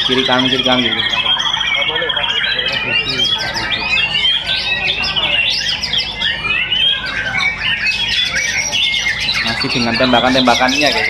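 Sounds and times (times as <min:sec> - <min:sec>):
songbird whistling and chirping: 0:00.0 - 0:11.0.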